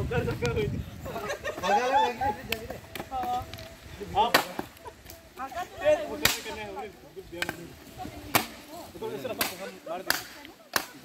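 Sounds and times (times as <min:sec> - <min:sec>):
voices talking: 0:00.0 - 0:11.0.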